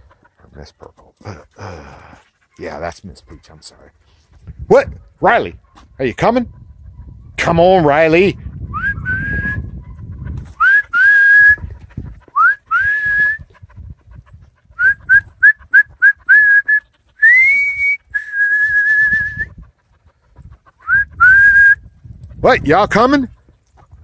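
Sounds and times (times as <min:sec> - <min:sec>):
person whistling: 0:08.8 - 0:09.6, 0:10.6 - 0:11.6, 0:12.4 - 0:13.4, 0:14.8 - 0:19.5, 0:20.9 - 0:21.8.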